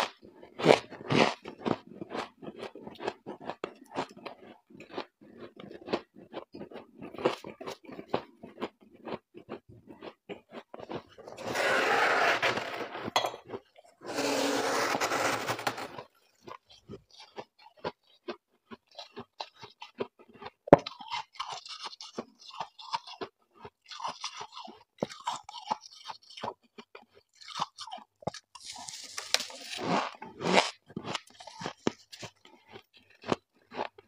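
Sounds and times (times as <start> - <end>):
crunching frost being chewed: 0.0 - 11.4, 16.0 - 34.0
frost scraped off freezer walls: 11.3 - 13.1, 14.0 - 16.1, 28.6 - 30.6.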